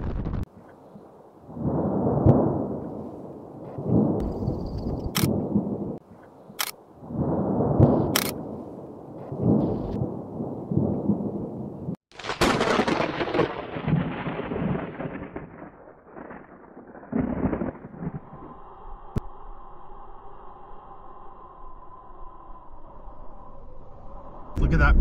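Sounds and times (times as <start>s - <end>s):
sharp thunder crack: 0.0s - 0.5s, 1.6s - 2.9s, 7.1s - 8.6s, 9.2s - 11.6s, 12.2s - 18.3s
thunder rumbling: 0.0s - 0.5s, 1.4s - 6.0s, 7.0s - 19.2s.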